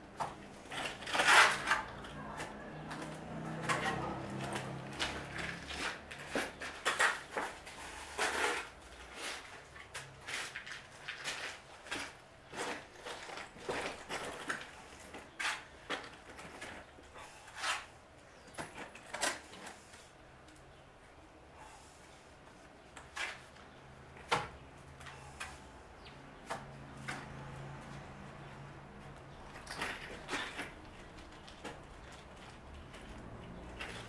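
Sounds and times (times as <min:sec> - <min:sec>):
trowel scraping and slapping mortar: 0:00.6 - 0:02.6, 0:03.6 - 0:14.6.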